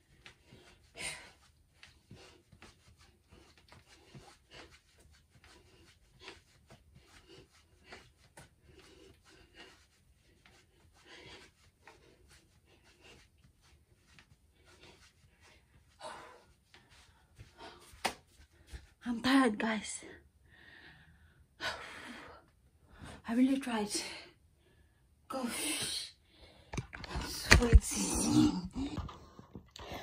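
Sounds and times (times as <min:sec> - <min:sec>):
person breathing: 0:20.4 - 0:23.2.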